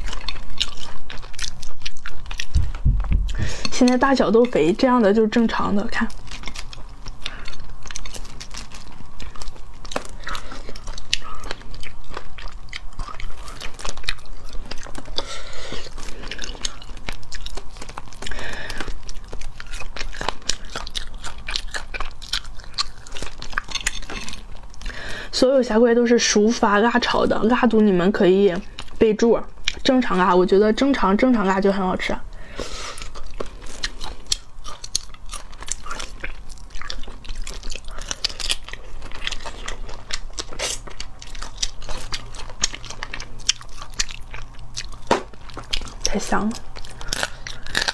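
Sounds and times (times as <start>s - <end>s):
biting and chewing: 0.0s - 25.3s, 32.4s - 47.9s
crustacean shells cracking: 5.9s - 25.2s, 33.0s - 47.9s.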